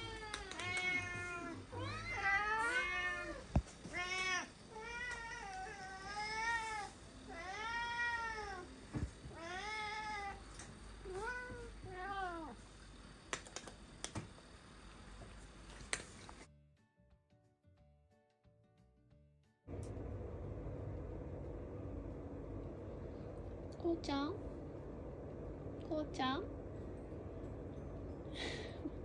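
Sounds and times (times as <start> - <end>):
cat meowing: 0.0 - 8.7.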